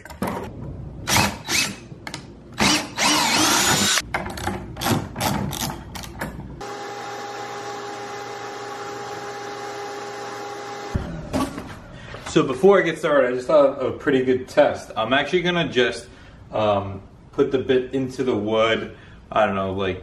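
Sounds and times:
cordless drill running: 2.6s - 4.0s, 6.6s - 11.0s.

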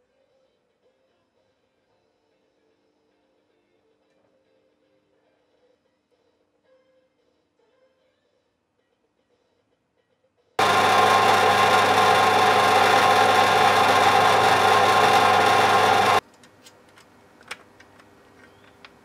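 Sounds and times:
small electric drill drilling: 10.6s - 16.2s.

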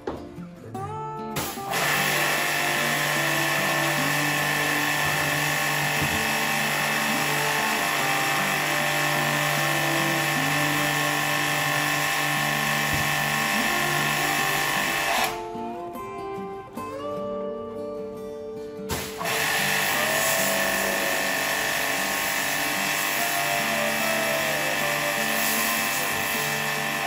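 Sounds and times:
pressure washer pump running: 1.7s - 15.4s, 19.0s - 27.0s
water jet hissing: 19.1s - 26.4s.

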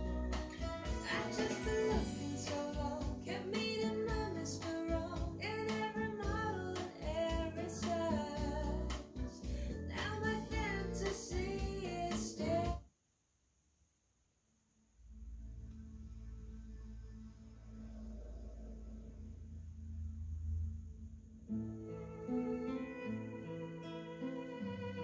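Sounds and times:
pop song with singer on speakers: 0.0s - 12.8s.

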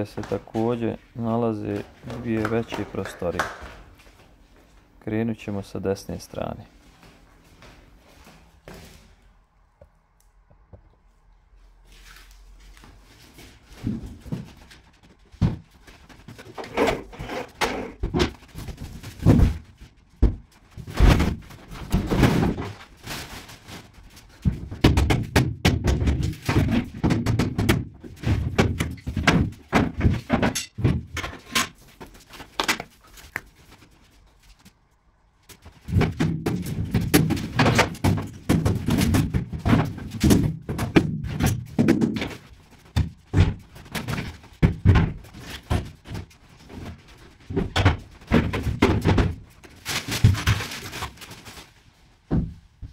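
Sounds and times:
furniture thudding and banging: 13.7s - 22.9s, 24.3s - 32.8s, 35.7s - 51.1s, 52.3s - 52.9s.

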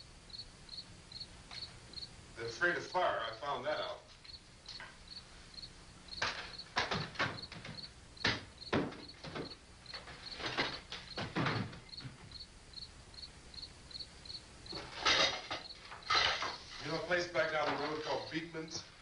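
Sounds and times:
crickets chirping: 0.0s - 19.0s
wooden furniture knocking: 6.2s - 12.4s.

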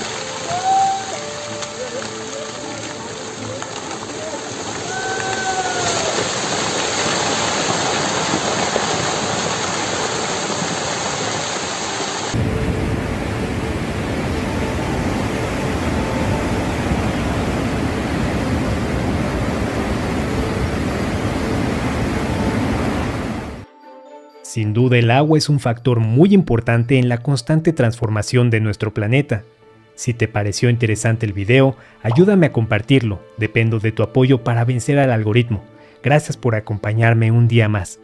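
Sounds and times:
landslide rushing: 0.0s - 23.6s
deep rumble: 12.4s - 23.6s.

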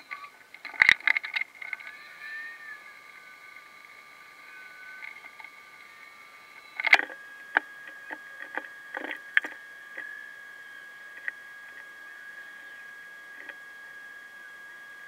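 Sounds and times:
steady high hum: 0.0s - 15.0s
sharp clicks and knocks: 0.1s - 2.0s.

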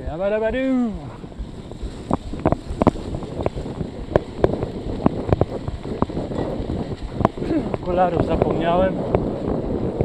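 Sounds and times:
wind on microphone: 0.0s - 10.0s
bike clicks and knocks: 1.9s - 9.3s.

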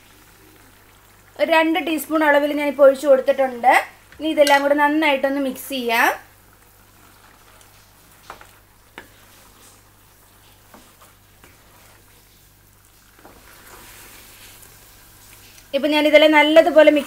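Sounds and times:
faint sizzle: 0.0s - 17.0s
spatula stirring in a pan: 6.4s - 15.7s.

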